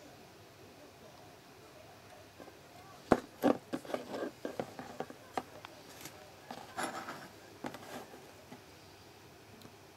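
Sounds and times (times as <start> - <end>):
rustling: 2.4 - 8.6.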